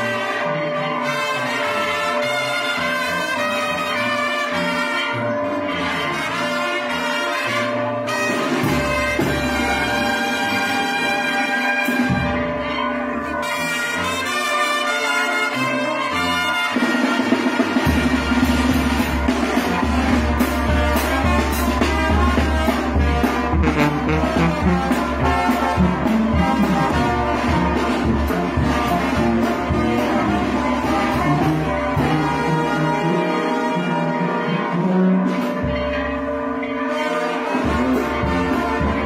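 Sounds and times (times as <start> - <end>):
brass band playing: 0.0 - 39.0
sousaphone bass line: 22.9 - 27.6.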